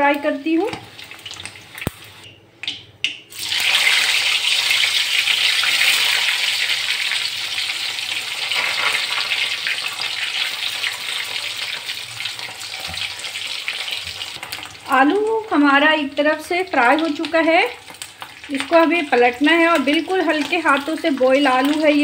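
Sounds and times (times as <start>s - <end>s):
potatoes sizzling in hot oil: 3.3s - 22.0s.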